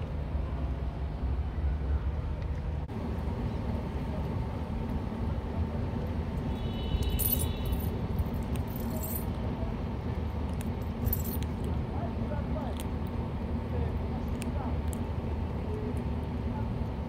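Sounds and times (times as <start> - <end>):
street noise rumble: 0.0 - 17.0.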